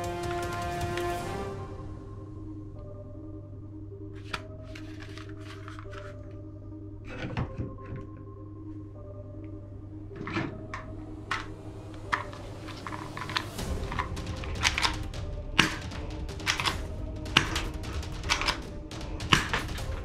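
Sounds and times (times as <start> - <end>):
plastic toy guns clicking: 14.6 - 15.0, 16.4 - 18.6, 19.3 - 19.8.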